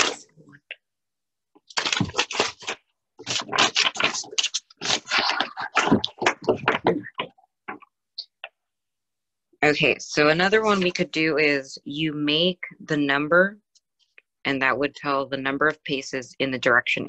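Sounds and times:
paper sheets rustling: 1.7s - 7.0s.

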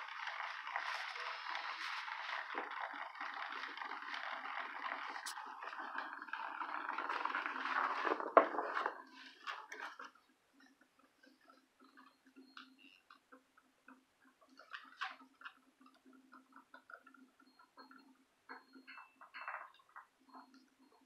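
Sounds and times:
vibrating toy buzzing on wood floor: 0.0s - 8.4s.

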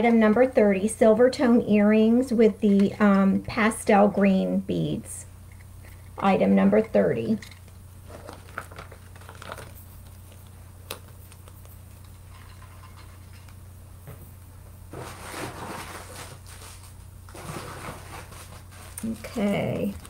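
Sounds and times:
steady low hum: 0.0s - 20.0s
rustling: 7.5s - 13.6s, 14.9s - 20.0s.

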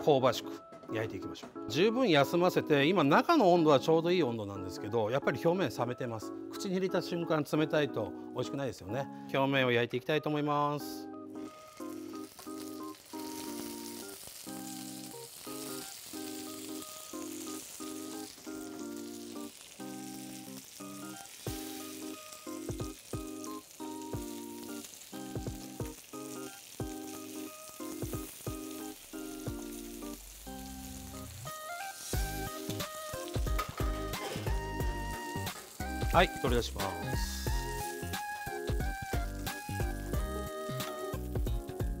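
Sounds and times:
soft melodic background music: 0.0s - 42.0s
steaks sizzling in a pan: 11.2s - 41.9s.

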